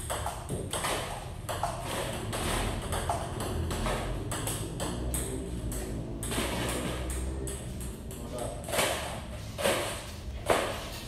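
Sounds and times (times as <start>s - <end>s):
table tennis ball clicking: 0.0s - 6.4s.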